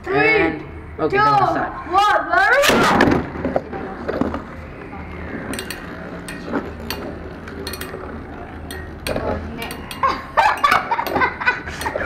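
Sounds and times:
spinning tops clicking and clinking: 5.4s - 12.0s.

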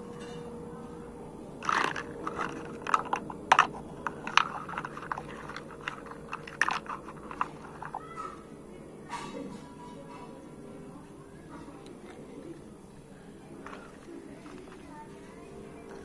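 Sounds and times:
plastic toys clacking together: 1.6s - 8.4s, 13.6s - 15.0s.

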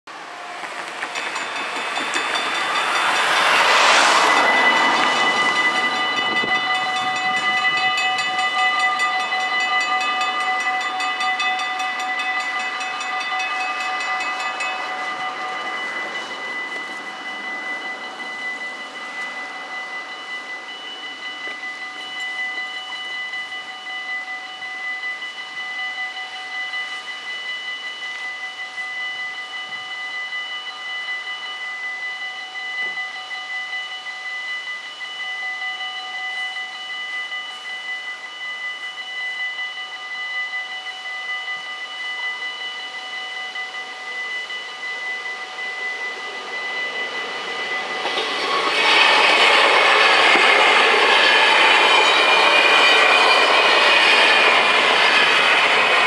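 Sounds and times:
level crossing bells ringing: 0.5s - 56.0s.

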